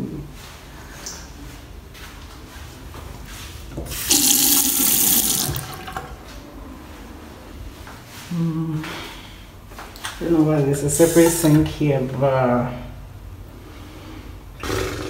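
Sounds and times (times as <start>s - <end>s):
tap water running into basin: 3.8s - 6.2s.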